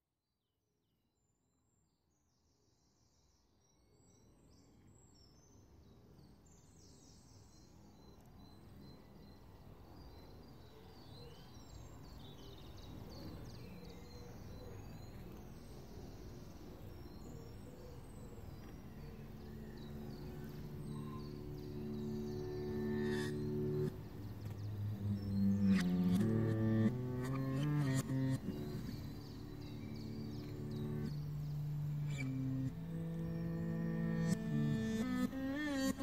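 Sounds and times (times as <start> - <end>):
birds chirping: 4.1 - 36.0
hissy outdoor ambience: 5.0 - 36.0
low steady musical tone: 12.9 - 36.0.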